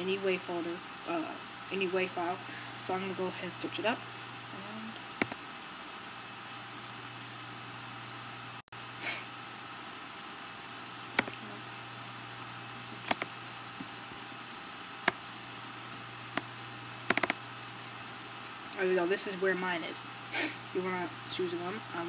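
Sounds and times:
room noise hum and hiss: 0.0 - 22.0
mouse clicks: 5.2 - 5.4, 11.2 - 11.4, 17.1 - 17.4.

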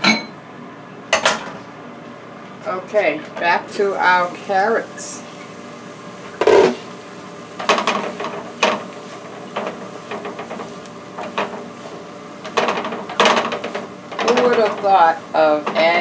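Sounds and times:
utensil scraping in skillet: 3.7 - 16.0.

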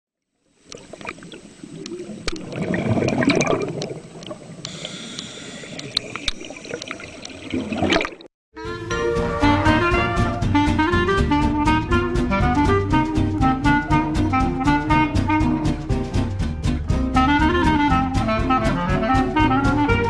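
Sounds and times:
underwater bubbling and gurgling: 0.4 - 8.3.

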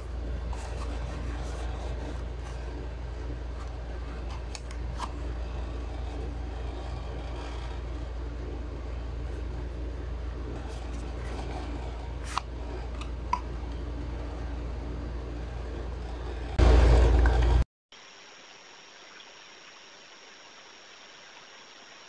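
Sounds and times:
steady low hum: 0.0 - 17.6.

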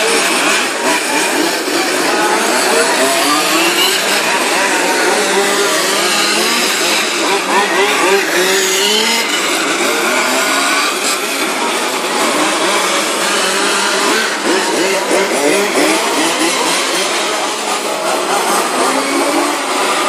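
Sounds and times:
model car engines racing: 0.0 - 20.0.

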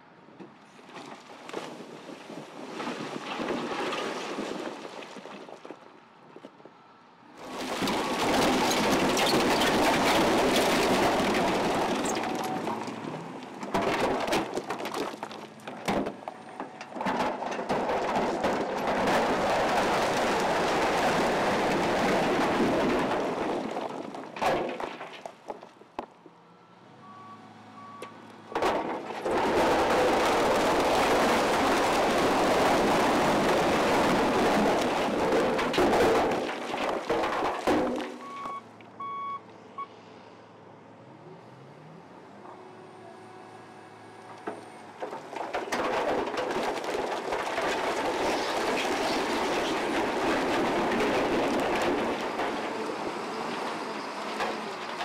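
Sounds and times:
rubble tumbling and water splashing: 0.8 - 6.5, 7.4 - 26.1, 28.5 - 38.6, 44.3 - 55.0
diesel machinery running: 41.7 - 47.5.

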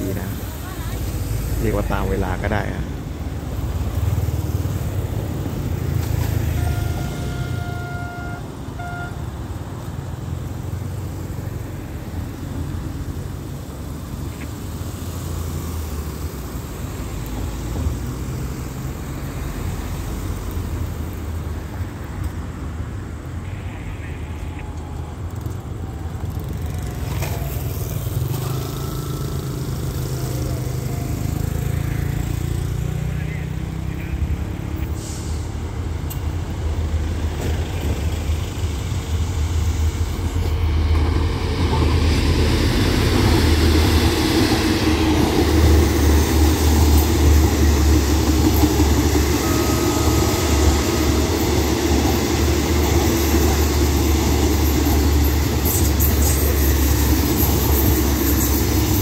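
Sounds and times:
locomotive engine drone: 0.0 - 59.0
vehicle horn: 6.4 - 9.3
motor scooter passing: 26.4 - 33.7.

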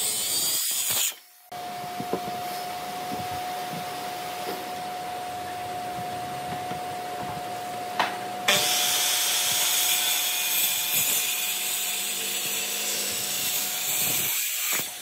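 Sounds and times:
circular saw cutting wood: 0.0 - 1.5, 8.5 - 15.0.

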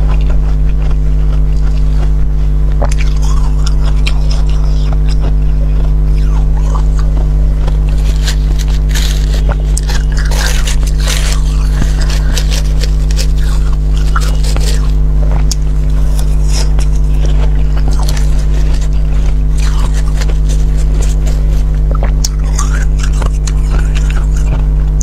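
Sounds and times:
loud steady low hum: 0.0 - 25.0
metal spoon scraping ice: 7.9 - 15.0, 16.0 - 21.7.

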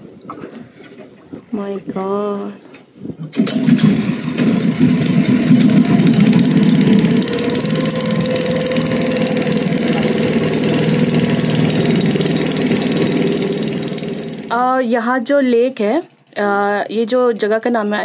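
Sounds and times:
motor boat engine running: 3.4 - 14.8.

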